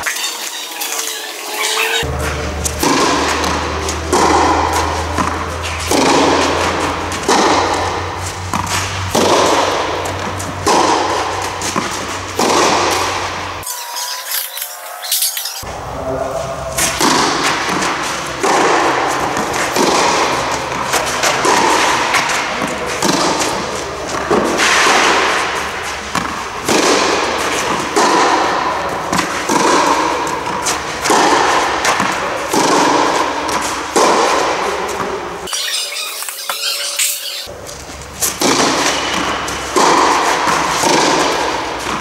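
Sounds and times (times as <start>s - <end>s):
racket hitting tennis ball: 0.0s - 15.8s, 16.4s - 42.0s.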